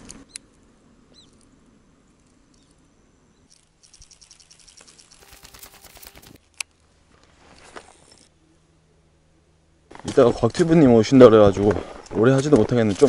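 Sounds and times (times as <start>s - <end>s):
fishing reel clicking: 3.5s - 6.6s
sharp click: 4.8s - 6.7s.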